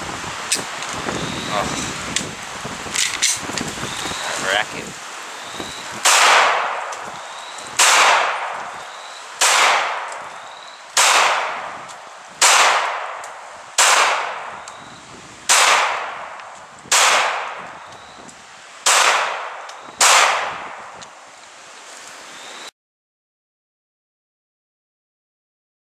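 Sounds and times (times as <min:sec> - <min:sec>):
pistol shots: 0:06.0 - 0:07.0, 0:07.8 - 0:08.7, 0:09.4 - 0:10.4, 0:11.0 - 0:11.8, 0:12.4 - 0:14.6, 0:15.5 - 0:17.7, 0:18.8 - 0:20.8.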